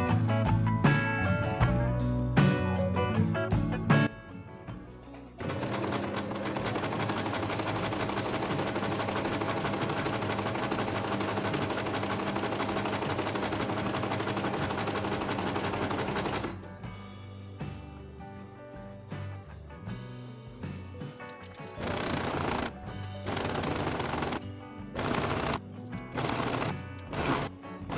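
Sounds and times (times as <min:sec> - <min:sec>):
sewing machine stitching: 0:05.4 - 0:16.6, 0:21.5 - 0:24.4, 0:25.0 - 0:27.9.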